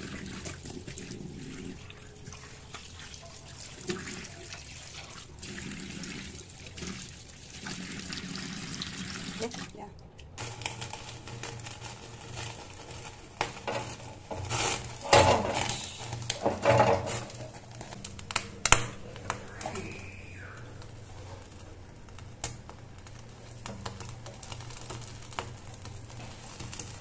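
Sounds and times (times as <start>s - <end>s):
steady low hum: 12.0s - 27.0s
metal grill rack clinking: 13.6s - 18.0s.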